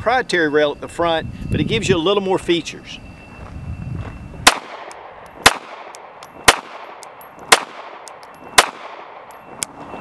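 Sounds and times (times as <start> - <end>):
pistol shots with echo: 4.4 - 9.4.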